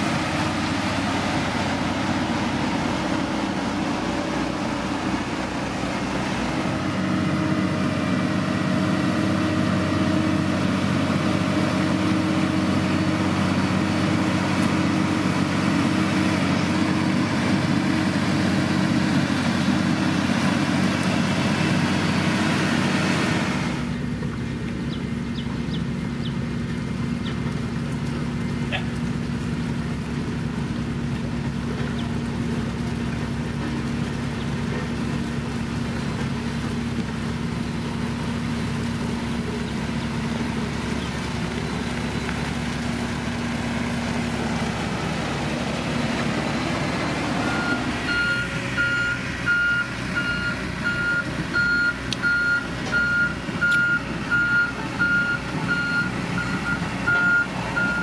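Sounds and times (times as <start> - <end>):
heavy machine engine running: 0.0 - 58.0
reversing alarm beeping: 47.4 - 58.0.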